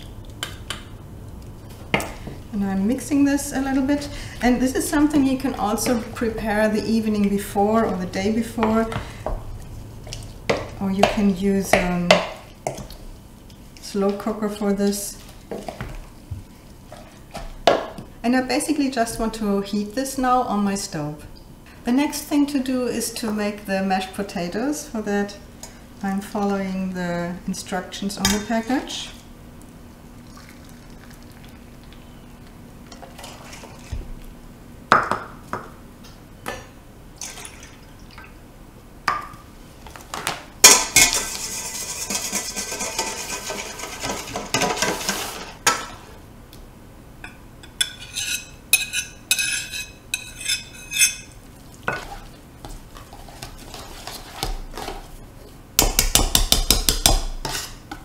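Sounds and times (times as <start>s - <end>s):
utensils clinking in metal bowl: 40.6s - 45.5s, 47.6s - 52.3s
whisk scraping bowl: 41.1s - 45.5s, 47.9s - 55.2s
fast whisking against bowl: 41.2s - 45.4s, 51.6s - 55.2s.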